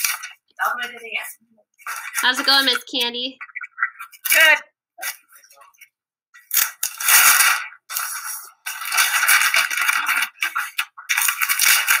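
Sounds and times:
wrapping paper crinkling: 0:06.6 - 0:12.0.

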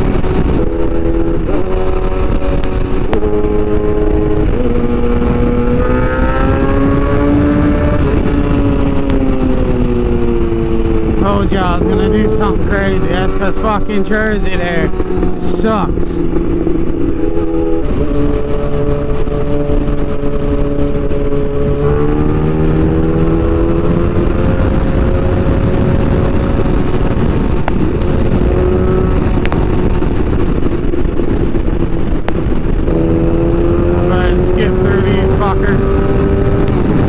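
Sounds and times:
motorcycle engine at speed: 0:00.0 - 0:37.0
wind noise on microphone: 0:00.0 - 0:37.0.

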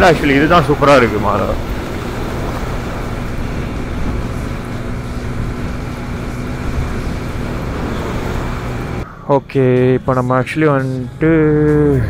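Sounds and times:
motorcycle engine hum: 0:00.0 - 0:09.1
wind rushing over microphone: 0:00.0 - 0:09.5.

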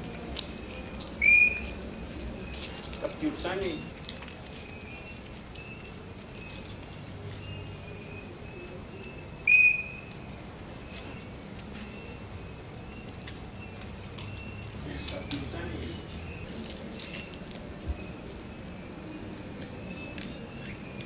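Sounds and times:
crickets chirping: 0:00.0 - 0:21.0
faint short high calls: 0:01.2 - 0:01.7, 0:09.4 - 0:10.1.

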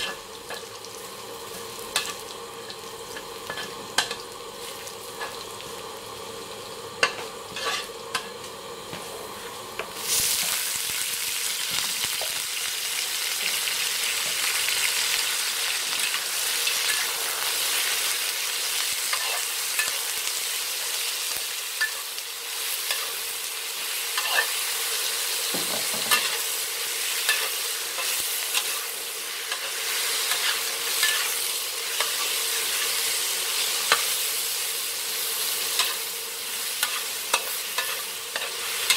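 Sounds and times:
oil sizzling in a wok: 0:00.0 - 0:38.9
metal spatula scraping a pan: 0:03.5 - 0:04.2, 0:07.0 - 0:08.3, 0:36.8 - 0:38.9.

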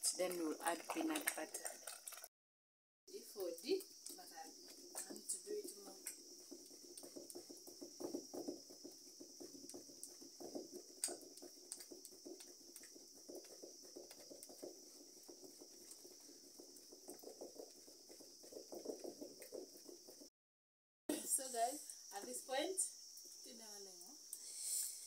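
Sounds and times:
wooden spoon scraping clay pot: 0:03.7 - 0:20.3.

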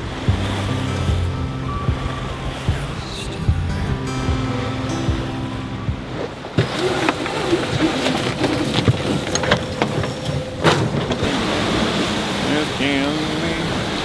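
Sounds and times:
music: 0:00.0 - 0:07.6
wind and water rushing: 0:00.0 - 0:14.0.

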